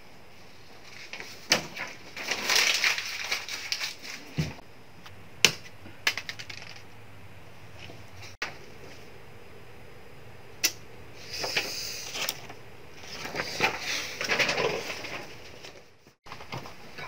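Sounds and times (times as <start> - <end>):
paper being crumpled: 0.9 - 4.4.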